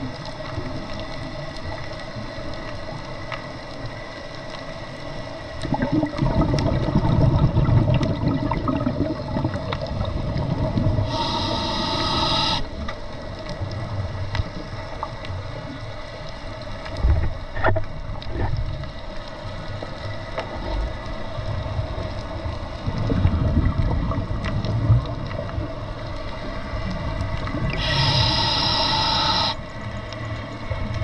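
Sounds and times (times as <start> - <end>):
faint clicks: 0.0 - 5.7, 11.4 - 23.2, 24.4 - 31.0
steady underwater hiss: 0.0 - 31.0
regulator bubbles rumbling: 5.5 - 12.6, 20.5 - 29.5.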